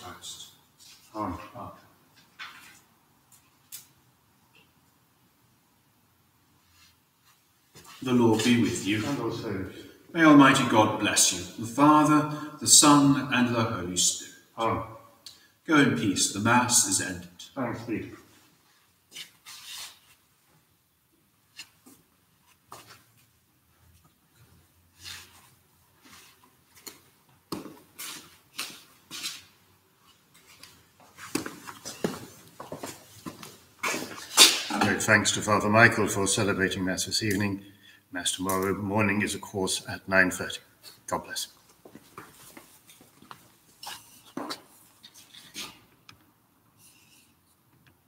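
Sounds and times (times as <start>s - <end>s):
cloth rustling against microphone: 18.2s - 34.8s, 41.6s - 46.0s
footsteps: 21.5s - 35.2s, 40.8s - 45.9s.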